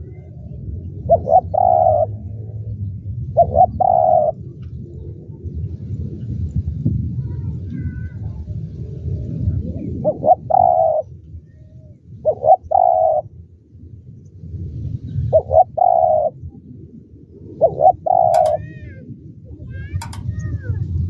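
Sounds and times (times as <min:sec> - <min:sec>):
dove cooing: 0:00.0 - 0:05.5, 0:07.7 - 0:13.4, 0:15.2 - 0:20.6.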